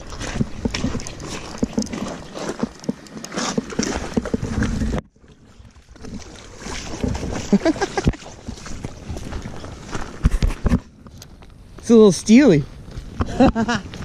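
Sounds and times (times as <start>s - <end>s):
water splashing: 0.0s - 10.2s.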